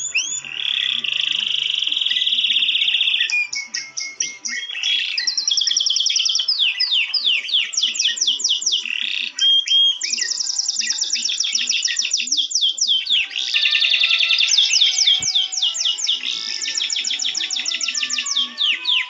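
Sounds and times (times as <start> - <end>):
soft background music: 0.0 - 19.0
songbirds chirping: 0.0 - 19.0.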